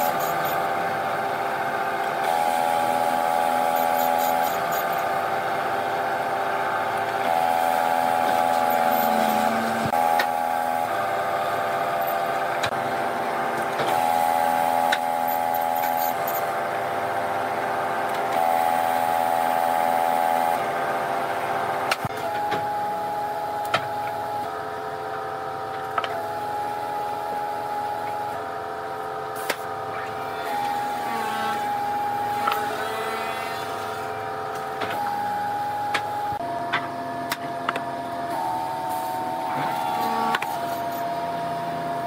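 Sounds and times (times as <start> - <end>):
electric motor whining: 0.0 - 12.8, 25.8 - 36.4, 38.3 - 41.2.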